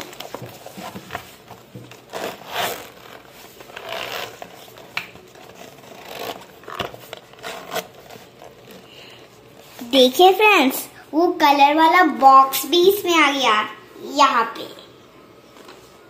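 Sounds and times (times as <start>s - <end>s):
pencil case zipper pulled: 2.1s - 4.8s, 5.4s - 8.5s.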